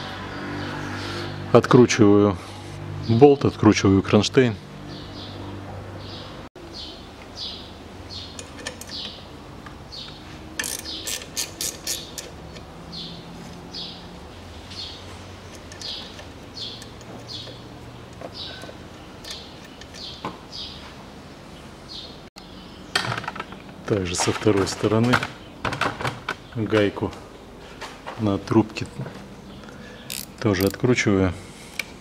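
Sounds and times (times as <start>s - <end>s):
bird chirping: 4.8s - 14.1s, 14.7s - 20.9s, 21.5s - 23.8s
ratchet wrench clicking: 10.6s - 12.6s, 30.1s - 30.8s.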